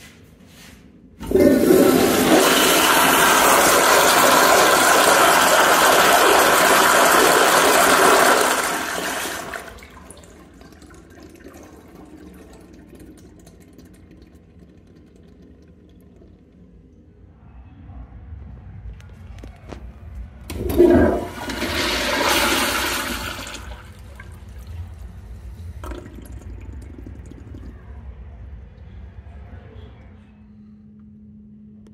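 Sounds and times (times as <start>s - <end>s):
toilet flushing: 1.2s - 17.2s, 20.4s - 28.0s.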